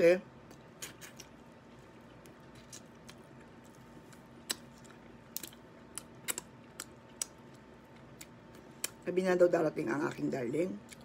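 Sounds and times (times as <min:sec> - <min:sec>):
quiet chewing: 0:00.4 - 0:09.0.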